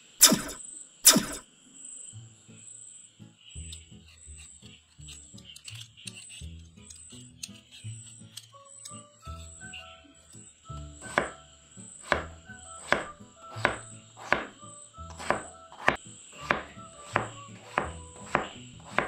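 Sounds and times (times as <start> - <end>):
knife chopping on wooden board: 11.0 - 11.4, 12.0 - 19.0.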